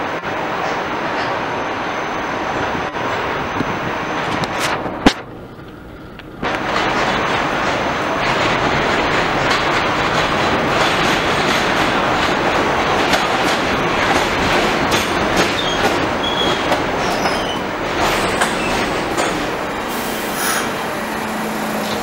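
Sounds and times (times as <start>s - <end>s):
train wheels rumbling on rail: 0.0s - 22.0s
clicking over rail joints: 4.3s - 19.8s
high wheel squeals: 15.5s - 19.0s, 19.9s - 22.0s
brake hiss: 19.8s - 20.8s.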